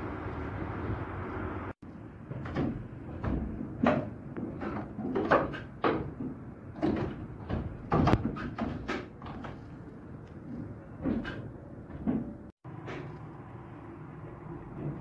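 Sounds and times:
wooden cogs creaking and knocking: 0:02.2 - 0:13.1.

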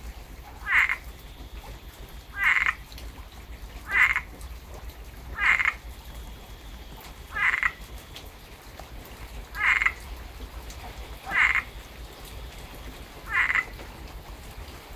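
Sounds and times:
tree frog pulsed croak: 0:00.6 - 0:02.9, 0:03.8 - 0:04.4, 0:05.3 - 0:08.2, 0:09.6 - 0:10.1, 0:11.1 - 0:12.0, 0:13.2 - 0:13.8.

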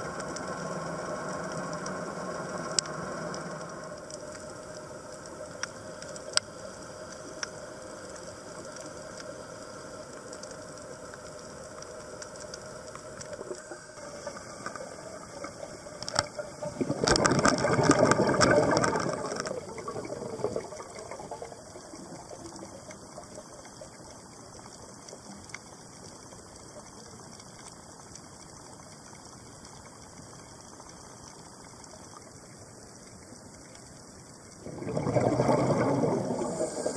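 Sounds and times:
steady low underwater hiss: 0:00.0 - 0:36.9
sharp underwater clicks: 0:00.1 - 0:09.3, 0:10.1 - 0:31.7
diver's exhaled bubbles burbling: 0:13.4 - 0:23.3, 0:34.6 - 0:36.9.

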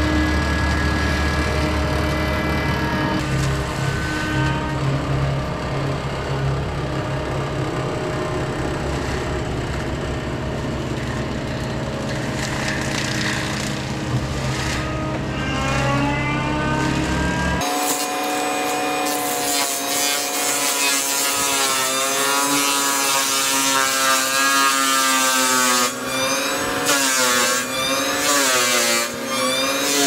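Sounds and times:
diesel engine running at high speed: 0:00.0 - 0:20.6.

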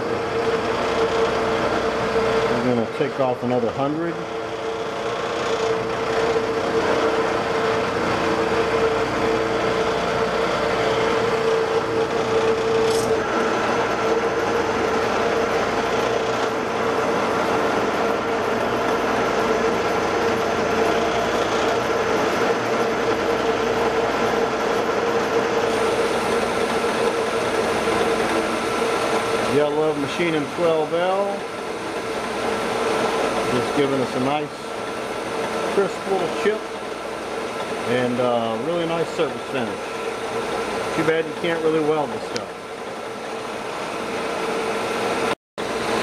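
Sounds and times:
machine hum: 0:00.0 - 0:46.0
metal lathe cutting steel: 0:00.0 - 0:46.0.

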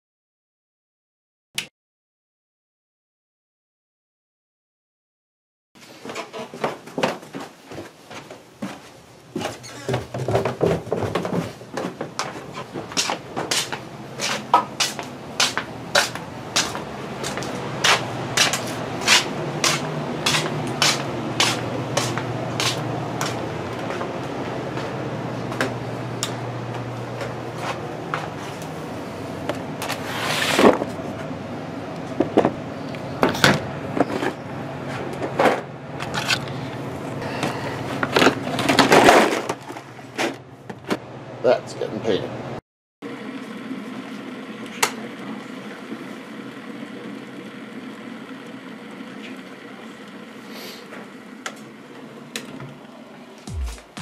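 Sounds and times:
plastic drawers knocking and clattering: 0:09.4 - 0:13.5.

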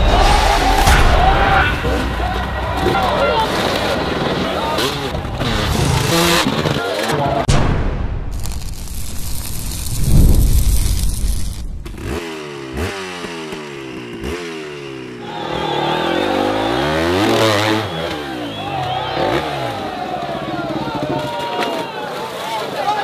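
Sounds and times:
crowd noise: 0:00.0 - 0:07.6, 0:14.8 - 0:23.0
motorcycle engines revving: 0:01.5 - 0:07.5, 0:10.8 - 0:23.0
loud low rumble: 0:07.5 - 0:12.2.

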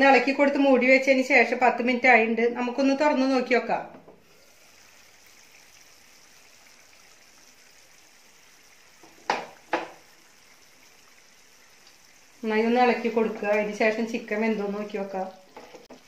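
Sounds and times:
faint steady hiss: 0:04.0 - 0:16.0.

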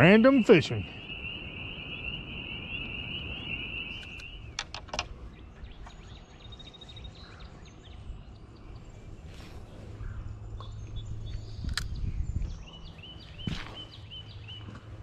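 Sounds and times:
high-pitched calling chorus: 0:00.0 - 0:04.6
faint bird chirps: 0:00.0 - 0:14.8
sharp clicks: 0:03.9 - 0:05.1.

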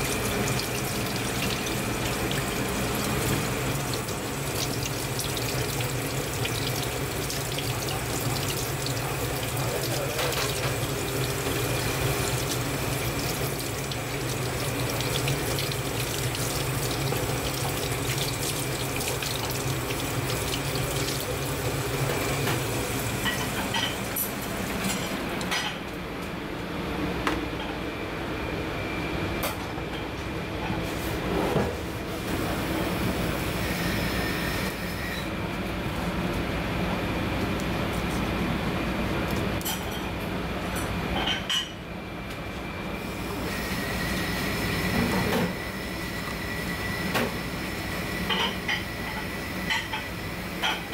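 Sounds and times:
tap water running into sink: 0:00.0 - 0:25.6.

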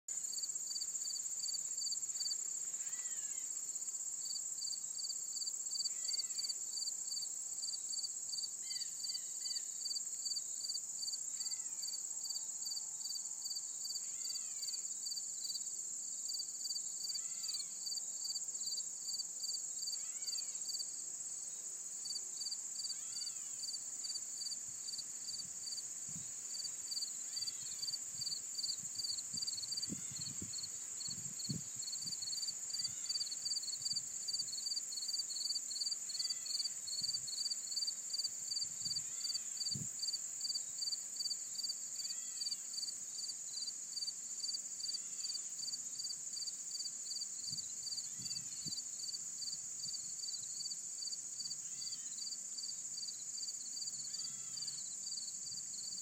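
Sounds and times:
cricket-like chirp: 0:00.1 - 0:56.0
insect chorus drone: 0:00.1 - 0:56.0.

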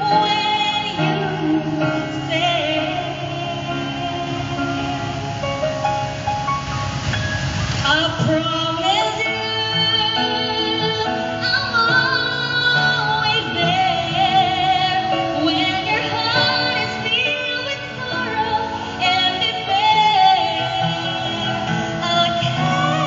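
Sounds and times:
woman singing a slow ballad: 0:00.0 - 0:05.5, 0:07.8 - 0:23.0
grand piano accompaniment: 0:00.0 - 0:23.0.

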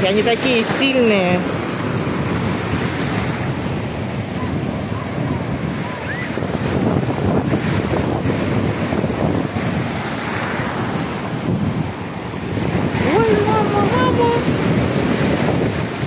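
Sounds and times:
ocean surf breaking on beach: 0:00.0 - 0:16.0
wind buffeting microphone: 0:00.0 - 0:16.0.

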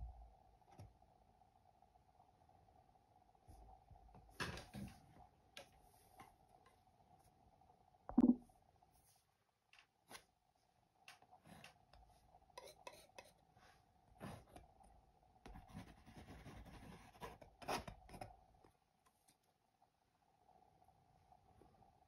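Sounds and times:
painting knife scraping canvas: 0:12.6 - 0:13.4.

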